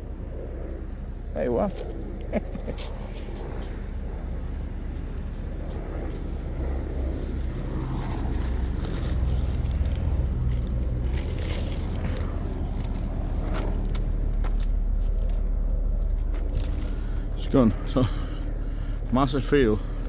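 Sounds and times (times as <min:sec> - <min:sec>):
low outdoor rumble: 0:00.0 - 0:20.0
light crackles: 0:07.8 - 0:17.4.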